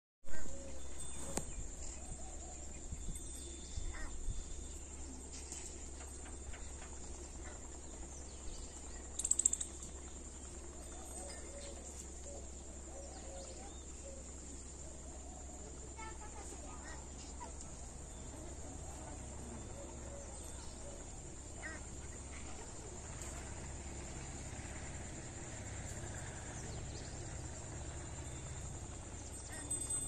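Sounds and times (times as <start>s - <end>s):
distant bird calls: 0.3s - 30.0s
low wind rumble on microphone: 0.8s - 5.0s.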